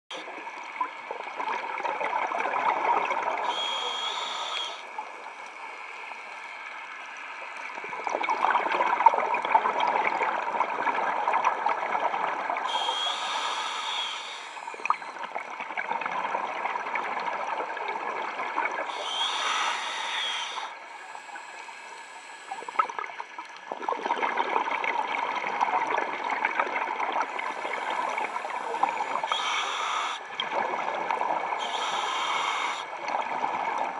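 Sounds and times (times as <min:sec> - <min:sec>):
regulator hissing inhales: 0:03.4 - 0:04.9, 0:12.7 - 0:15.2, 0:18.9 - 0:22.9, 0:27.4 - 0:30.4, 0:31.6 - 0:33.0.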